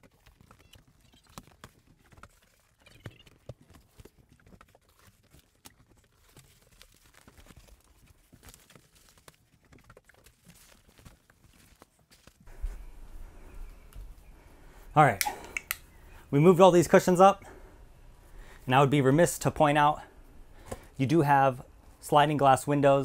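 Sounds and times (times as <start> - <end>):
faint footsteps on steps: 11.8 - 14.9.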